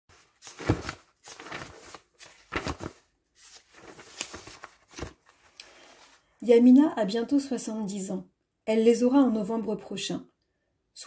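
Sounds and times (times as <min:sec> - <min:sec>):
paper rustling: 0:00.1 - 0:06.3.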